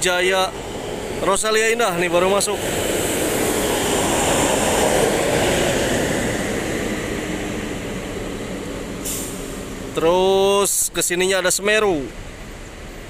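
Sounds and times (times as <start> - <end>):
bus driving past: 0.0 - 10.9
short hiss: 9.0 - 9.7.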